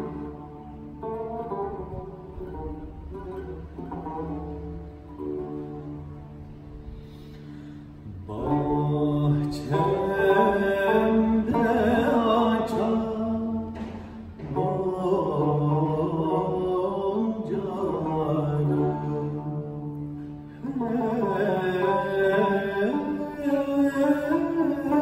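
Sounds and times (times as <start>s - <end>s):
plucked lute: 0.0s - 25.0s
man singing: 8.1s - 25.0s.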